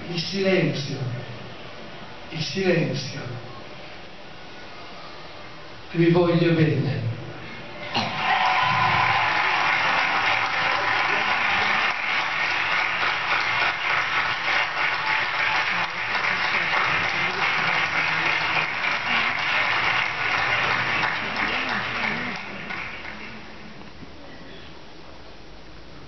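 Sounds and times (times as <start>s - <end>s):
large crowd applauding: 7.9s - 23.8s.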